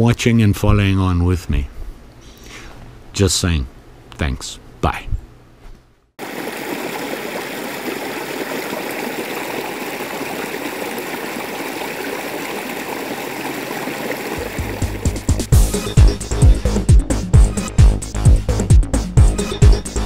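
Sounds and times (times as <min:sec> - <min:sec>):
stream cascading over rocks: 0:06.2 - 0:15.5.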